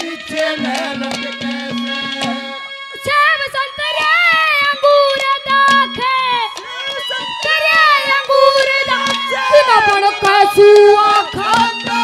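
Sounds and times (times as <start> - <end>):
hand drum strokes: 0.0 - 2.6
boy singing through microphone: 0.0 - 12.0.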